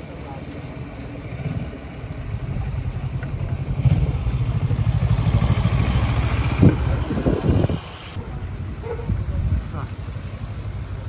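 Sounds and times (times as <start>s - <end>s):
wind buffeting microphone: 3.4s - 10.0s.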